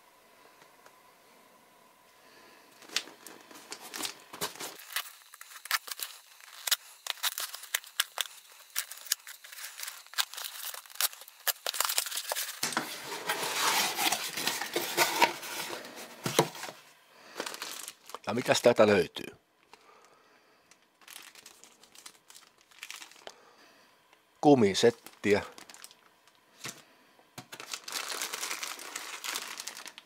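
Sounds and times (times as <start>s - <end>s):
plastic wrapping crinkling: 2.8s - 18.8s, 20.7s - 23.4s, 24.8s - 26.8s, 27.4s - 30.0s
cardboard and tape tearing: 3.6s - 16.8s, 27.6s - 30.0s.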